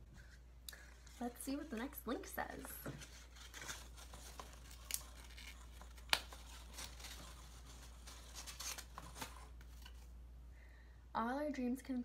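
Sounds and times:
paper crinkling and tearing: 0:01.1 - 0:10.1.

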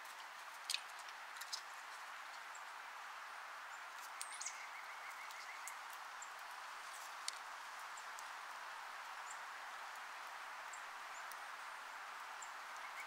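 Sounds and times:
wind through pine trees: 0:00.0 - 0:13.0.

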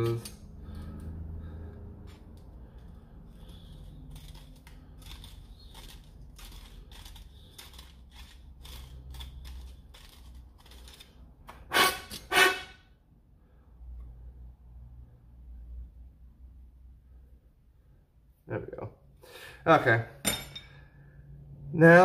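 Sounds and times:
hand tool scraping metal: 0:03.4 - 0:12.8.

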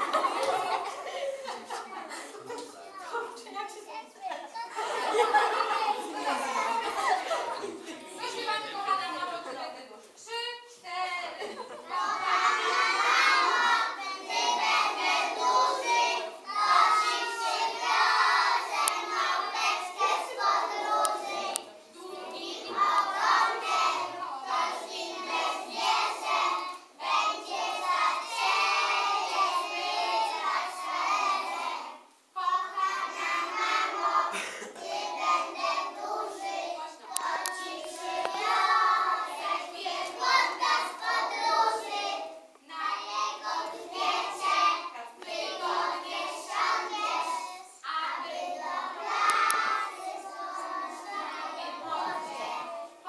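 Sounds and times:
children singing together: 0:11.6 - 0:53.0.

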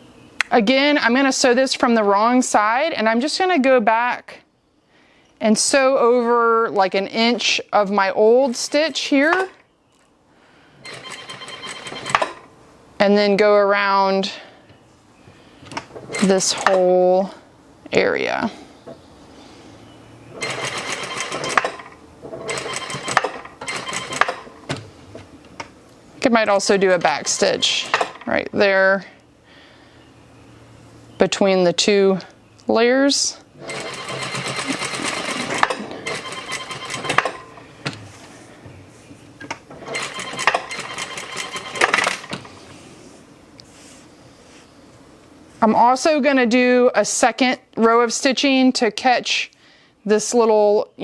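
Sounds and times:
sewing machine stitching: 0:10.8 - 0:12.5, 0:20.4 - 0:24.5, 0:33.6 - 0:37.5, 0:39.7 - 0:42.5.

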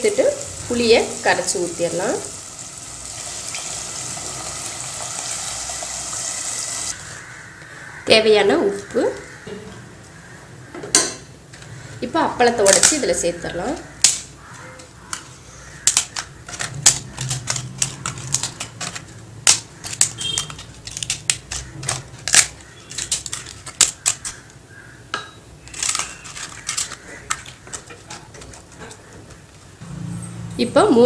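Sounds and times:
fried papads crackling as broken: 0:13.8 - 0:24.6, 0:25.6 - 0:29.1.

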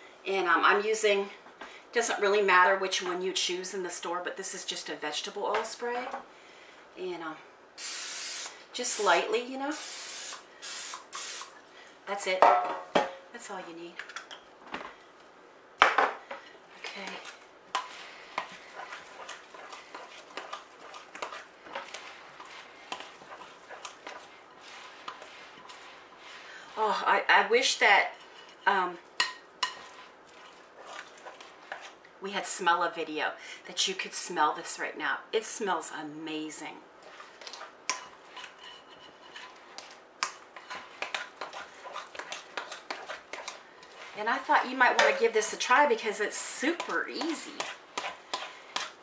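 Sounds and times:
utensil scraping glass bowl: 0:17.1 - 0:26.8, 0:40.6 - 0:45.1, 0:46.7 - 0:49.0.

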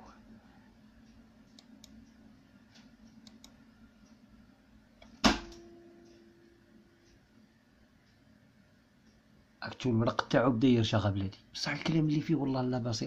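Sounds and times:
faint clicks: 0:01.0 - 0:04.2.

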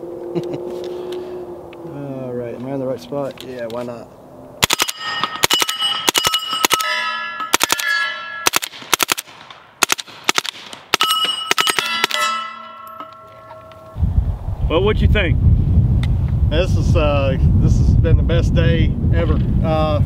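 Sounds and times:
steel targets clanging: 0:04.6 - 0:08.6, 0:11.0 - 0:14.0
gunshots: 0:04.6 - 0:12.4.

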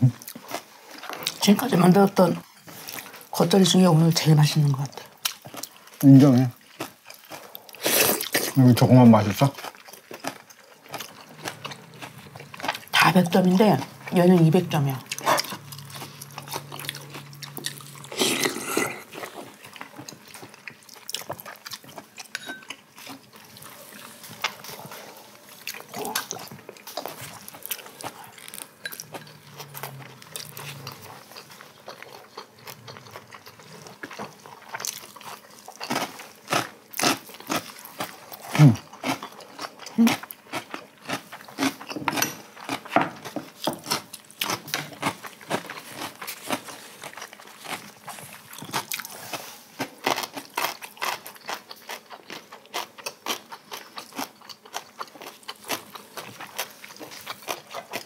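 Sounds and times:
chewing and crunching: 0:00.0 - 0:58.0.

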